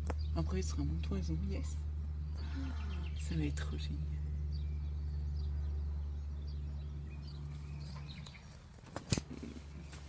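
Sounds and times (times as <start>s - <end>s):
low steady rumble: 0.0s - 10.0s.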